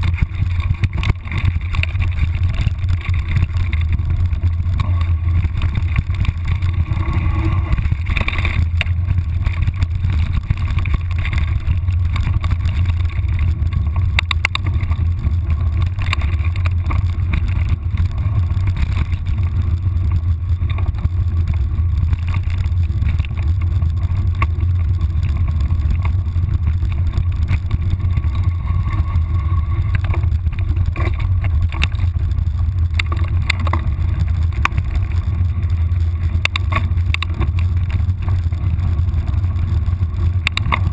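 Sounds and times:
clicks and rattles: 0.0 - 40.9
wind rumble on microphone: 0.0 - 40.9.

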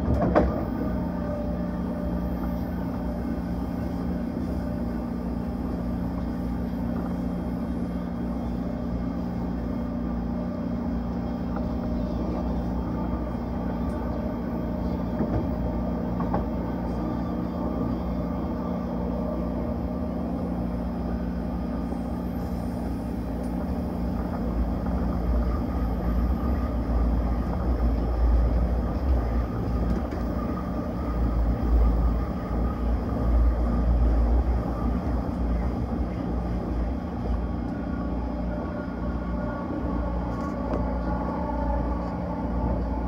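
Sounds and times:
train rumbling on rails: 0.0 - 43.0.

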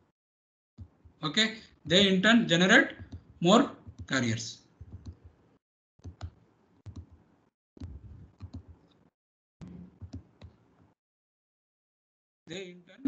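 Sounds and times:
computer mouse clicks: 4.8 - 5.4, 6.0 - 7.2, 7.8 - 10.6.

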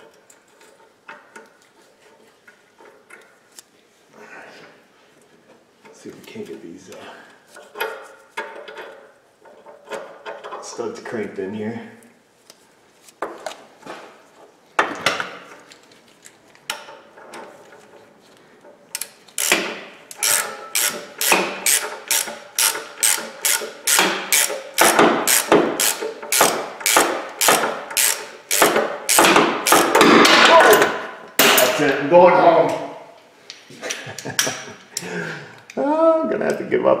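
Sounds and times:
hand ratchet clicking: 18.9 - 30.0.

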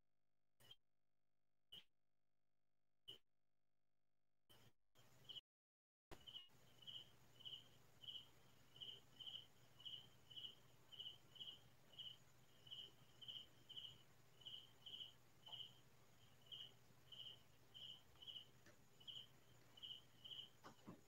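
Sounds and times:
cricket chirping: 4.5 - 5.4, 6.1 - 21.0.

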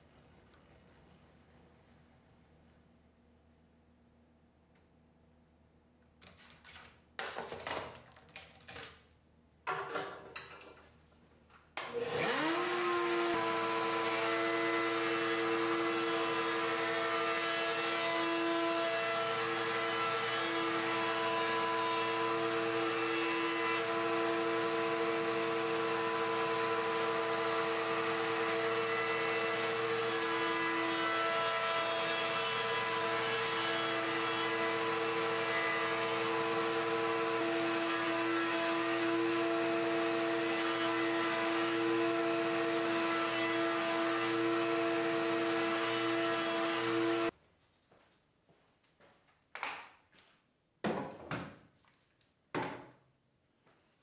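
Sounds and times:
router whining and cutting: 11.8 - 47.3.

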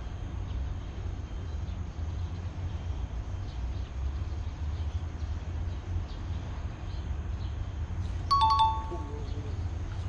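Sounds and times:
traffic rumble: 0.0 - 10.0
bright ding chime: 8.3 - 9.2.

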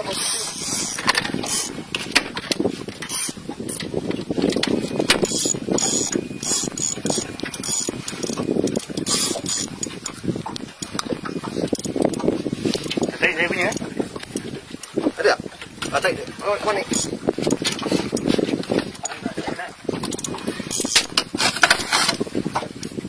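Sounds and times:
fishing reel clicking: 0.1 - 1.8, 3.0 - 3.4, 5.1 - 10.2, 10.8 - 14.4, 16.9 - 17.1, 20.1 - 21.1.

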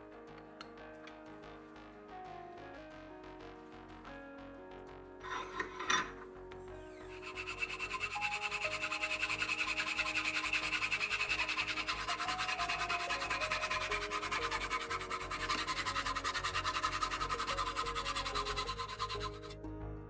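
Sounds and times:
background music: 0.0 - 20.0
hacksaw cutting steel rod: 5.2 - 6.2, 7.0 - 19.6.

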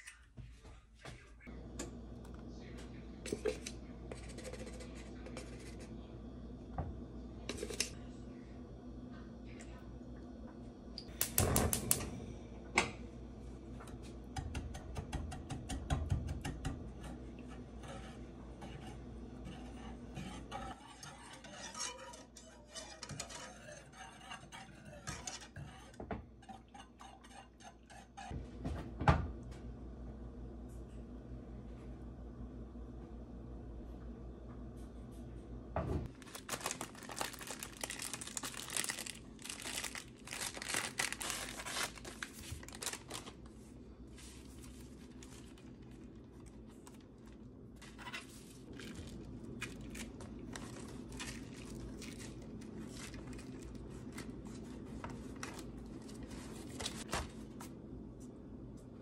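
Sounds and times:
whisk scraping a saucepan: 14.8 - 28.4.

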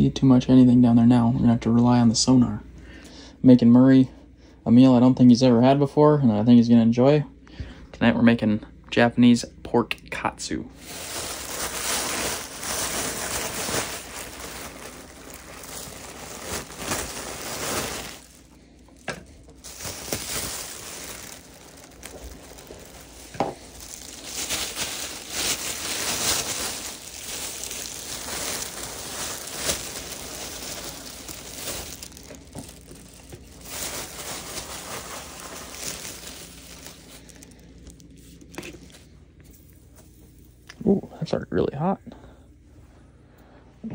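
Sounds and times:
paper bag crinkling: 10.8 - 39.9.

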